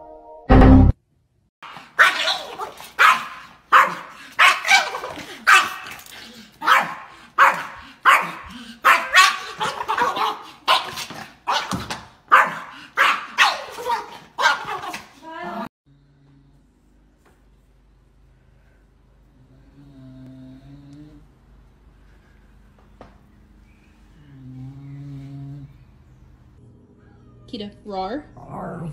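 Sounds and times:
small dog barking: 0:01.6 - 0:06.0, 0:06.6 - 0:15.1.

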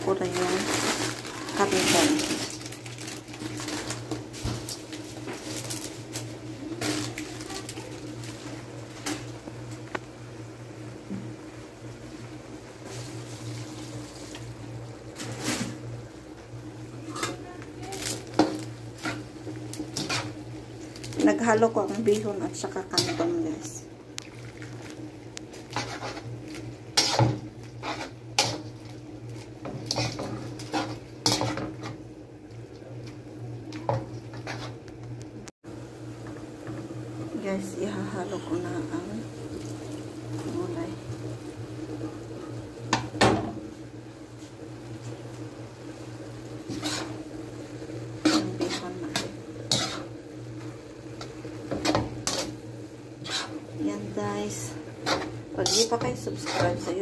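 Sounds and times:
metal spatula scraping a wok: 0:19.9 - 0:20.4, 0:23.0 - 0:23.4, 0:25.7 - 0:26.3, 0:27.0 - 0:28.7, 0:29.6 - 0:32.0, 0:34.3 - 0:34.8, 0:46.6 - 0:47.2, 0:48.2 - 0:50.2, 0:51.2 - 0:52.6, 0:53.2 - 0:53.7, 0:54.5 - 0:57.0.

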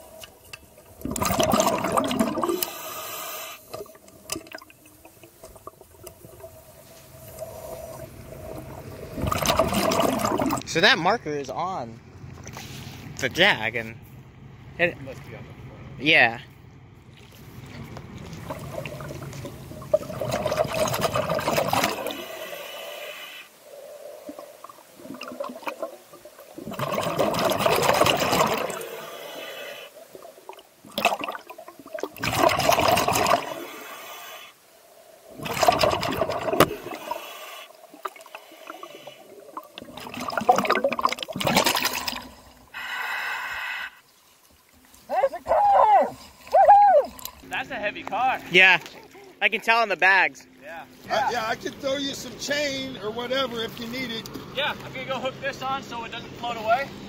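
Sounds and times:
air bubbles underwater: 0:00.9 - 0:03.0, 0:03.6 - 0:10.7, 0:18.1 - 0:22.7, 0:23.6 - 0:29.2, 0:29.9 - 0:33.8, 0:35.2 - 0:42.7.

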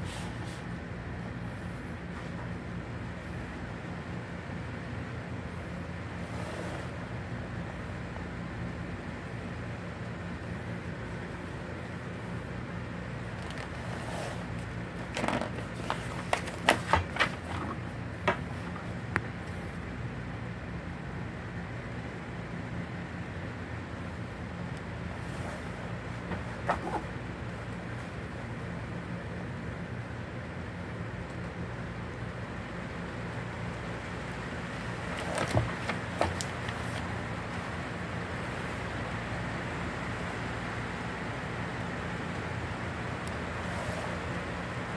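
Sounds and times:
low background hum: 0:00.0 - 0:44.9
steady low background noise: 0:00.0 - 0:44.9
paper crackling as page flips: 0:13.3 - 0:17.9, 0:34.7 - 0:37.2
magazine pages rustling: 0:13.3 - 0:18.8, 0:25.3 - 0:27.1, 0:34.7 - 0:37.6.

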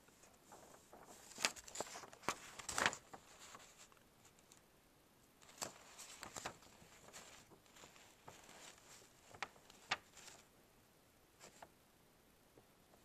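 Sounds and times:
paper rustling: 0:00.1 - 0:04.6, 0:05.4 - 0:10.5, 0:11.4 - 0:11.7.

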